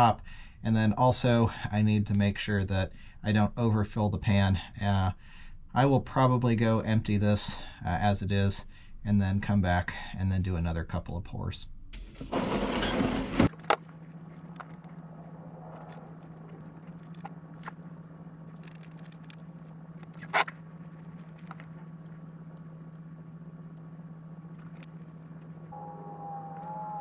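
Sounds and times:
steady low hum: 0.0 - 27.0
clicks and scrapes of hands working: 18.5 - 21.8.

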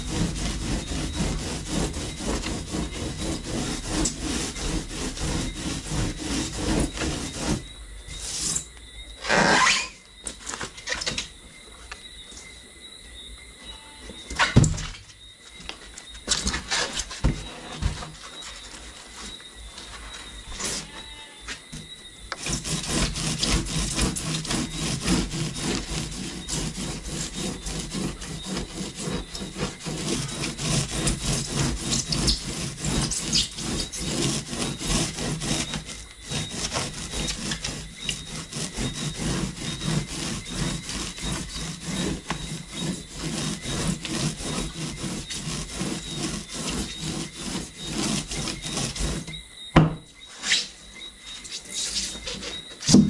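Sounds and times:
sanding pad scraping foam: 0.0 - 8.7, 22.3 - 49.4.

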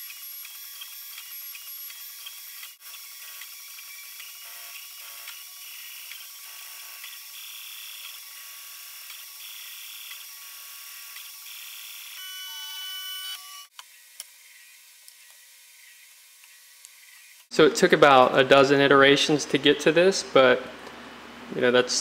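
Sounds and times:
printer stepper motors whining: 0.0 - 13.7.

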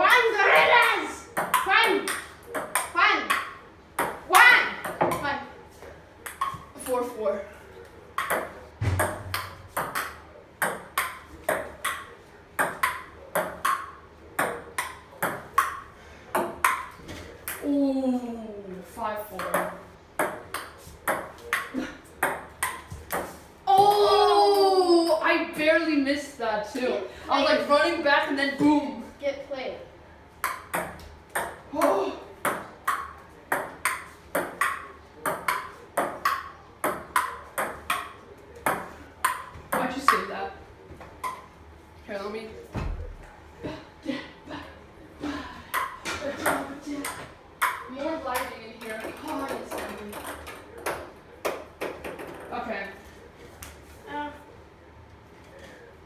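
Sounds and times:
ping pong ball hitting paddles: 1.3 - 5.3, 6.2 - 6.9, 8.2 - 17.7, 19.4 - 24.2, 30.4 - 40.3, 45.7 - 52.5
ball bouncing on wooden table: 8.2 - 15.8.

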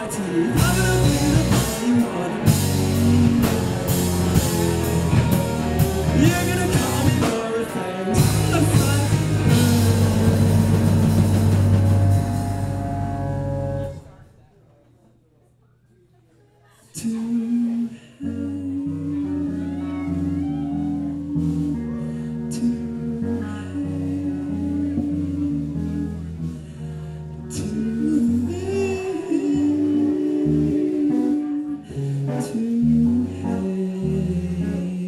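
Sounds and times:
person singing: 0.0 - 14.0, 17.0 - 35.0
live rock band playing: 0.0 - 14.1, 18.8 - 35.0.

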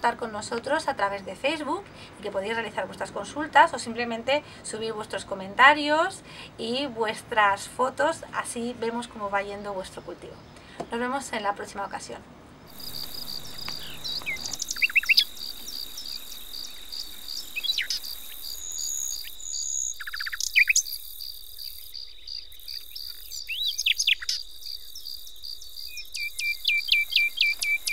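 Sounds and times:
birds chirping: 12.6 - 27.9
crickets trilling: 12.7 - 27.9.

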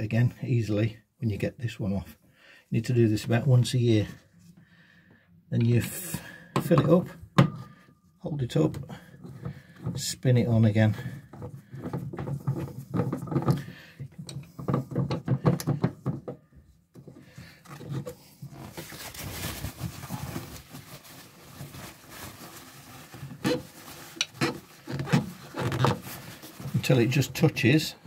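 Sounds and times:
soft rustling: 18.1 - 27.7
paper towel scraping: 18.2 - 27.8
gloves squeaking on metal canister: 23.3 - 27.7.

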